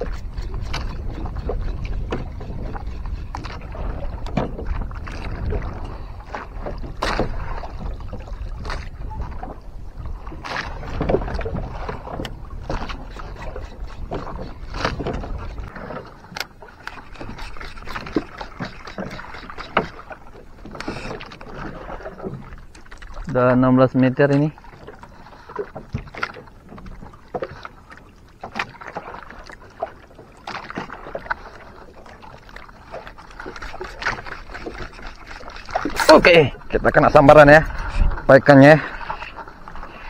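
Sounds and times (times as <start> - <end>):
wind noise on microphone: 0.0 - 20.0, 35.8 - 40.0
water slapping against boat hull: 0.0 - 40.0.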